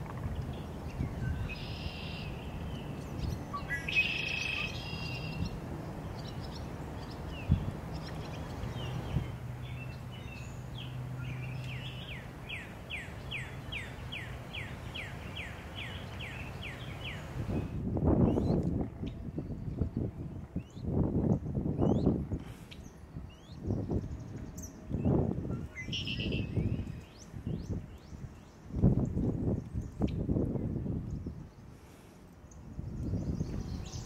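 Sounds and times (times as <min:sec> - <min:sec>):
bird calls: 0:00.0 - 0:17.4, 0:21.8 - 0:28.5.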